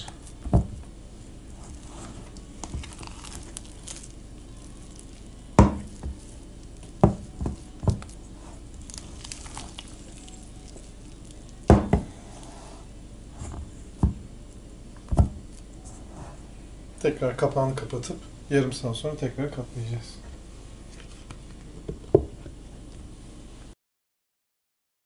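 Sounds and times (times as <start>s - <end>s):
dough thumping in a metal bowl: 0.0s - 0.8s, 5.6s - 6.2s, 6.8s - 8.2s, 11.6s - 12.1s
dough squelching: 0.0s - 14.2s.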